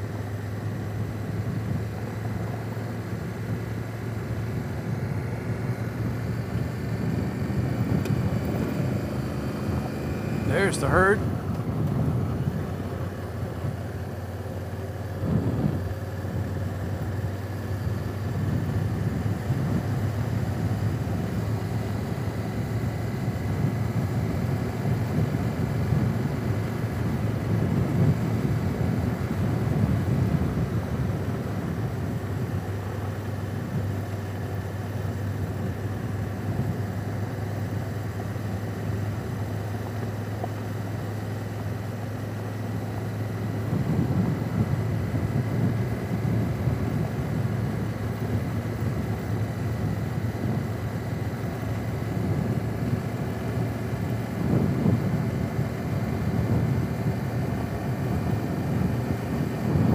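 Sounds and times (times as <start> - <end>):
motorcycle engine running: 0.0 - 59.9
riding noise: 6.0 - 13.8.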